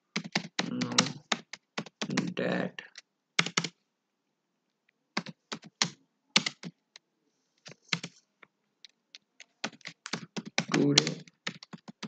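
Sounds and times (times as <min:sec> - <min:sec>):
computer keyboard typing: 0:00.1 - 0:03.8, 0:05.2 - 0:06.8, 0:07.6 - 0:08.2, 0:08.9 - 0:12.0.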